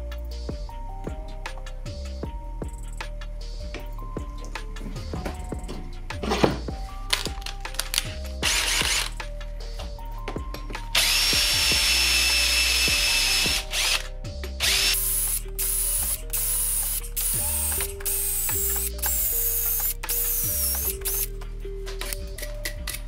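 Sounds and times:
background music: 0:00.0 - 0:23.0
power drill whining: 0:07.1 - 0:09.2, 0:10.9 - 0:21.3.

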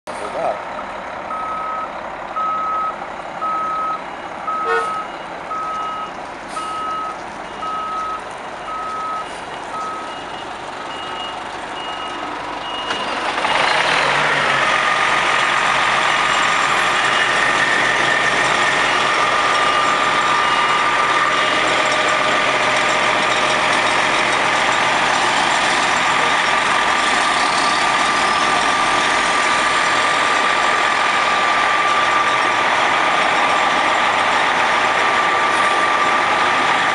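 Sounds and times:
diesel engine running: 0:00.1 - 0:36.9
reversing beeper: 0:01.3 - 0:15.0, 0:16.0 - 0:30.3.

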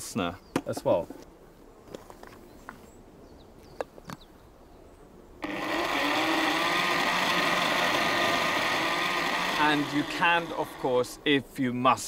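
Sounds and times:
blender running: 0:05.4 - 0:11.2.

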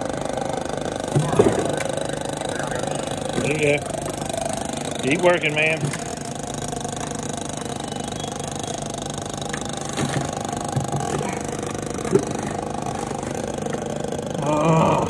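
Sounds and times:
steady droning hum: 0:00.0 - 0:15.0
gear knocking against wood: 0:03.2 - 0:07.8.

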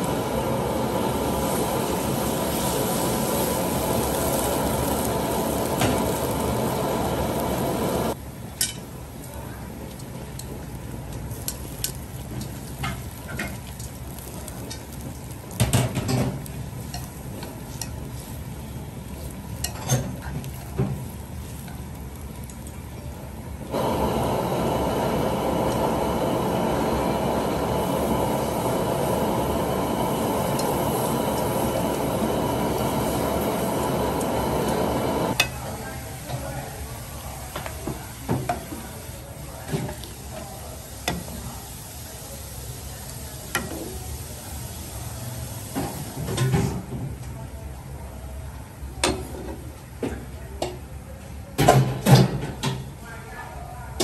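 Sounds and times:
gas burner rushing: 0:00.0 - 0:08.2, 0:23.5 - 0:46.9
utensils clinking against pan: 0:19.6 - 0:20.7.

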